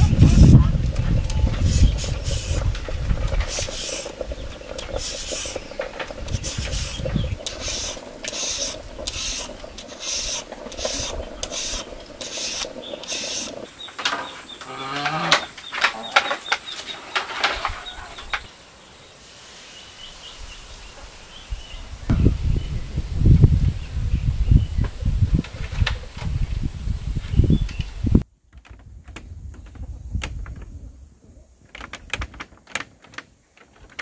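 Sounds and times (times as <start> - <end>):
repeated scraping strokes: 0.0 - 18.5.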